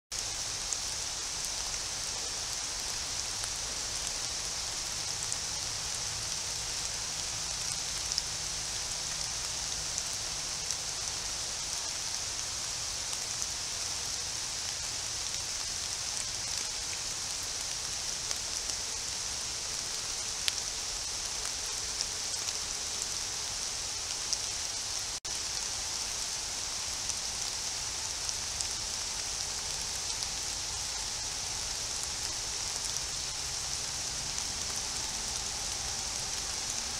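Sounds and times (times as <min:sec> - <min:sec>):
rain on foliage: 0:00.1 - 0:36.9.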